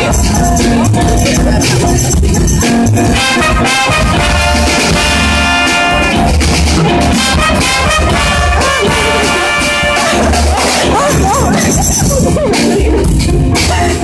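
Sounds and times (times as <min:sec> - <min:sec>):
drum kit: 0:00.0 - 0:14.0
upright bass: 0:00.0 - 0:14.0
brass horns playing melody: 0:03.0 - 0:12.4.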